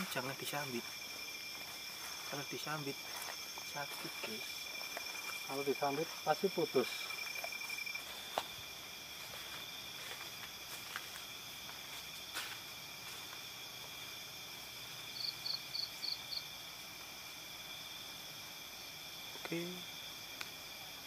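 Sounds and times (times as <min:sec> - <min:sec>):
crickets and insects trilling: 0:00.0 - 0:21.0.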